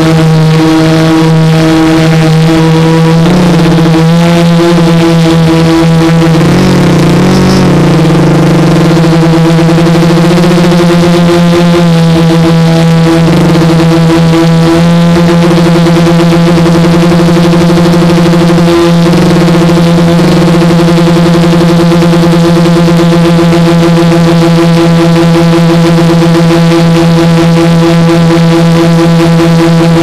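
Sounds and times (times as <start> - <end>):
quadcopter motors droning: 0.0 - 30.0.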